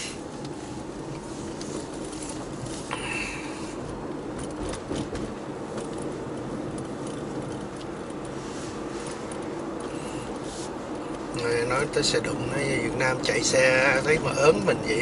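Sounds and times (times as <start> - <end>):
road and engine noise inside car: 0.0 - 15.0
light clicks and jingling: 5.8 - 8.4.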